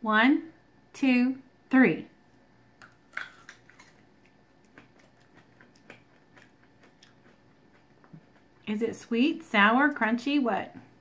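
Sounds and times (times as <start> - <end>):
people chewing plums: 2.8 - 8.8.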